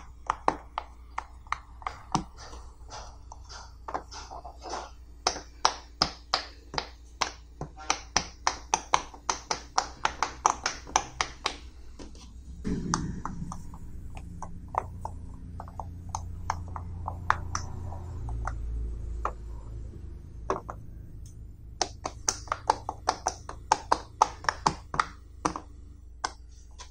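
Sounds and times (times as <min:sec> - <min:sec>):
low rumble: 0:12.4 - 0:21.7.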